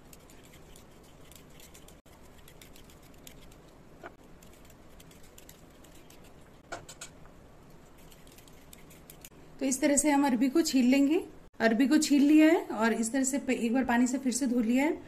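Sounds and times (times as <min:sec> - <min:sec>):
vegetable peeler scraping: 0:00.0 - 0:03.7, 0:07.9 - 0:09.3.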